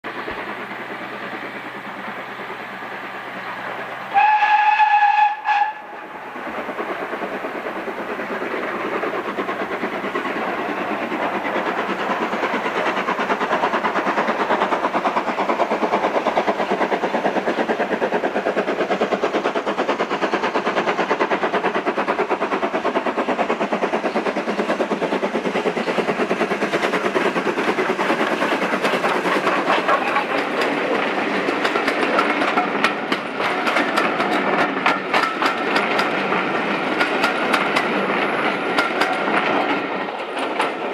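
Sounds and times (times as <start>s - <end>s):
steam locomotive working hard: 0.0s - 40.9s
steam whistle blast: 4.1s - 6.0s
wheels clicking over rail joints: 6.4s - 40.9s.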